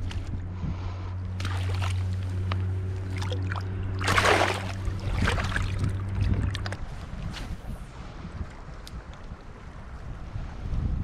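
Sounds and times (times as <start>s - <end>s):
low hum: 0.0s - 10.2s
water splashing: 1.4s - 6.9s.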